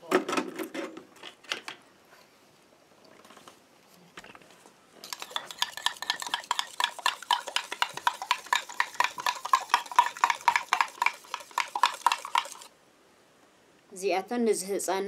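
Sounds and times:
wooden stick knocking metal pot: 5.1 - 12.7.

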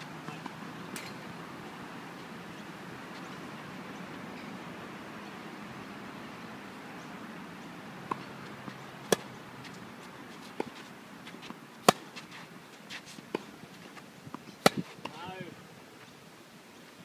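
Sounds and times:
racquets striking tennis ball: 9.1 - 9.4, 11.4 - 12.3, 14.4 - 15.2.

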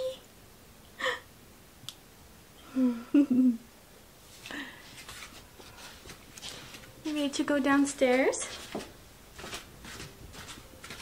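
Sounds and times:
soft humming voice: 2.6 - 3.7.

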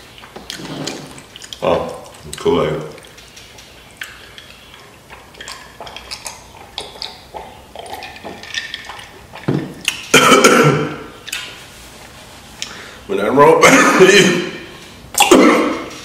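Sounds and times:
person drinking and swallowing: 5.4 - 11.2
person coughing: 10.1 - 11.1, 13.6 - 14.5, 15.2 - 15.9.

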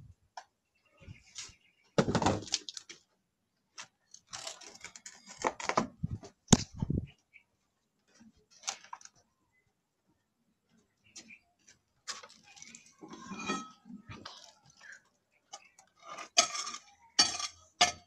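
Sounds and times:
knocks and thumps: 2.0 - 2.5.

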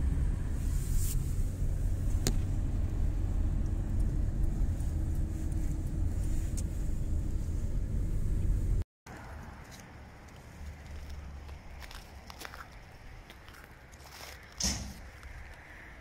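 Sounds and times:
tyres and engine rumbling: 0.0 - 16.0
sharp click: 14.6 - 15.1.

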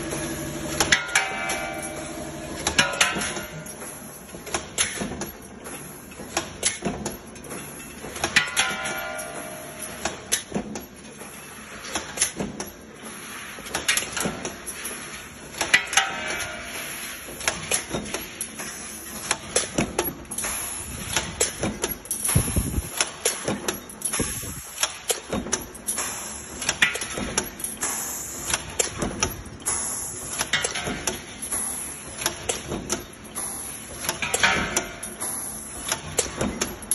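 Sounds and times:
power press metallic clanks: 0.0 - 36.9
pneumatic hiss: 16.6 - 36.9.

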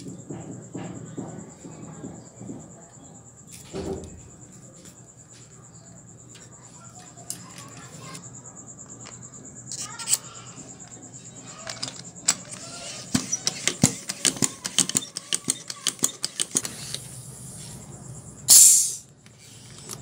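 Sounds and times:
short hiss of air: 18.5 - 19.1.

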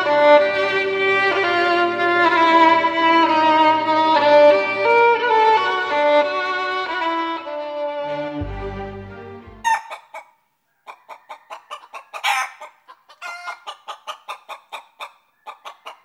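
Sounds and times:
violin music: 0.0 - 9.9
chicken squawk: 9.6 - 16.0
chickens clucking: 9.6 - 16.0.

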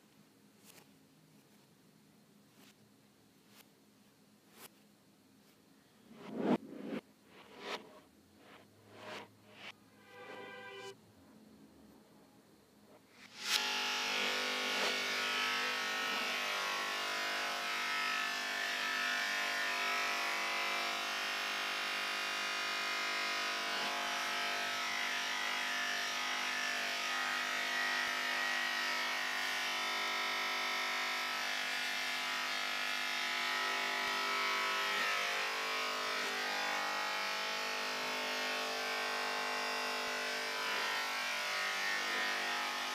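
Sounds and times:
electric hair clippers buzzing: 13.2 - 42.9.

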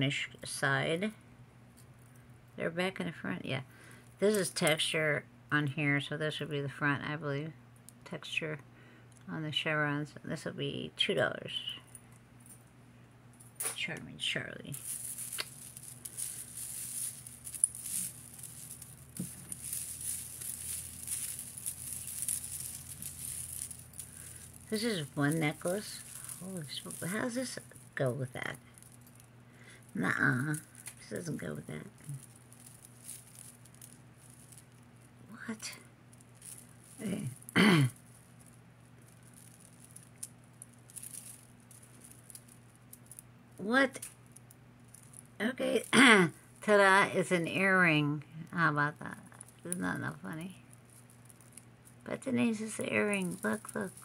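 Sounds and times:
low steady hum: 0.0 - 54.0
necklace chains and beads clinking: 4.0 - 5.1, 14.4 - 54.0
jewelry clicking and rattling: 14.7 - 54.0.

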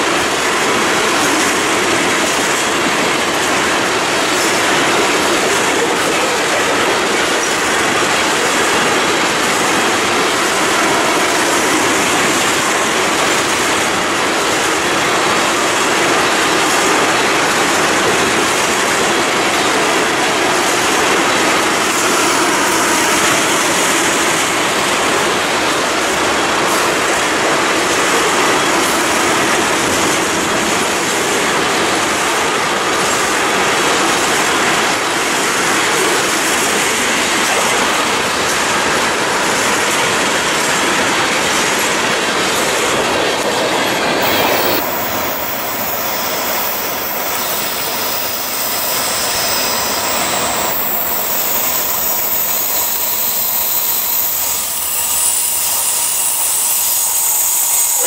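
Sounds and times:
freight train wheels clacking: 0.0 - 58.0
train approaching: 0.0 - 58.0
train wheels squealing: 15.4 - 30.2, 43.6 - 58.0.

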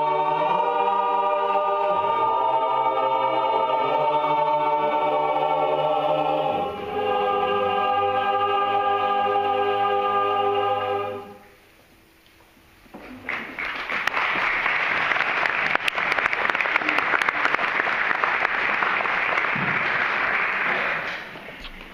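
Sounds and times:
choir singing a chord: 0.0 - 11.8
audience applauding: 13.0 - 21.6.

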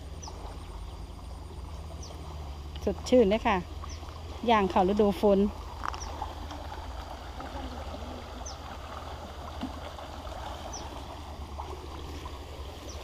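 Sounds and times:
floodwater rushing through creek: 0.0 - 13.0.

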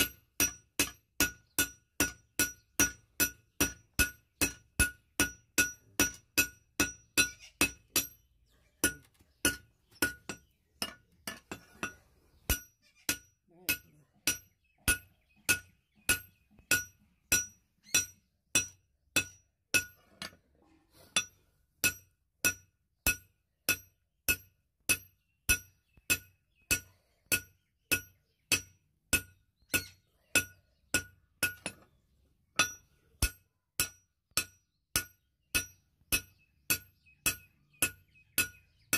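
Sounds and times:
hammer striking metal on anvil: 0.0 - 8.2.

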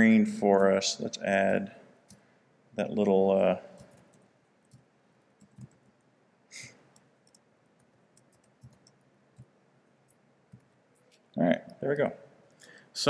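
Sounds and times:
faint keyboard clicks: 3.8 - 5.9, 6.6 - 9.5
short breath: 12.6 - 13.0.

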